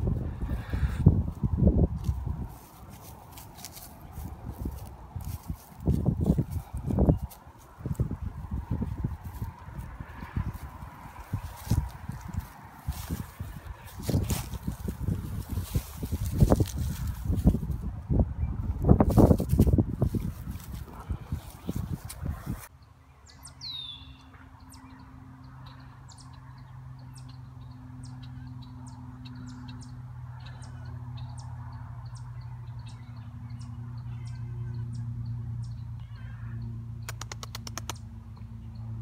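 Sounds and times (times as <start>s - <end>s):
birds chirping: 2.4s - 17.4s, 20.0s - 39.0s
quick clicks: 37.0s - 38.0s.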